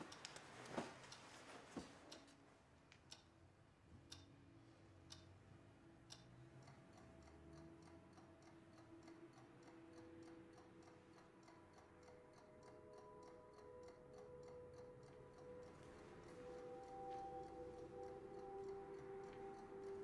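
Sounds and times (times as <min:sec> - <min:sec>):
faint clock ticking: 0:00.0 - 0:20.0
soft sustained musical notes: 0:05.8 - 0:20.0.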